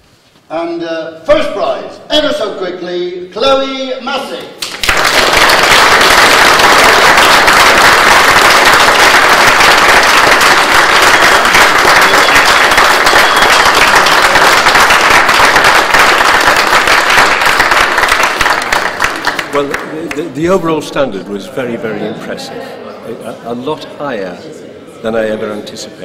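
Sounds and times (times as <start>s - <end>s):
audience applauding: 4.6s - 20.5s.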